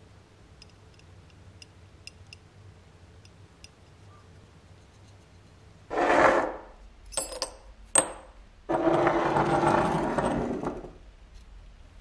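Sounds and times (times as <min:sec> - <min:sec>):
metal scraping: 0:05.9 - 0:06.7.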